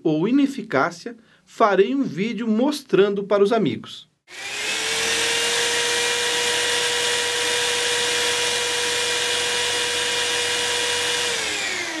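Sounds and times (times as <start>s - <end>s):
electric drill whining: 4.3s - 12.0s.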